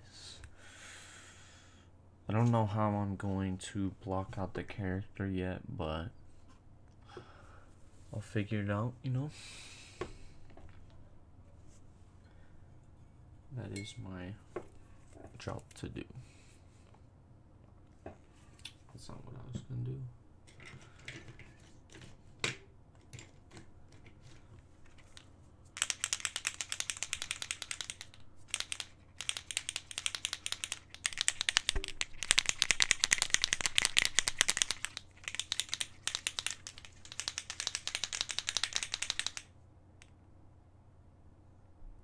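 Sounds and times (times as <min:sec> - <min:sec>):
paint marker ball rattling: 0:25.8 - 0:39.5.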